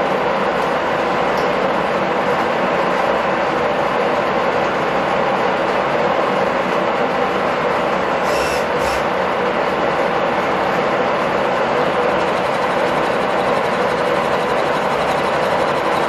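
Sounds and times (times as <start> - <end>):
milling machine cutting metal: 8.2 - 9.2.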